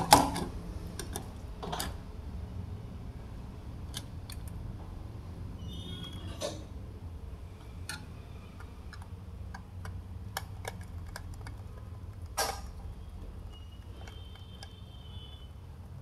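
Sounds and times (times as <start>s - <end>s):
low steady hum: 0.0s - 16.0s
screwdriver clicking on terminals: 7.9s - 12.6s.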